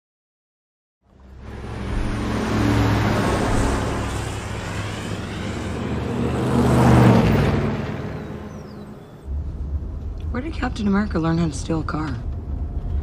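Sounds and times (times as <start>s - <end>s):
road traffic: 1.0s - 13.0s
pickup truck driving past: 1.2s - 9.3s.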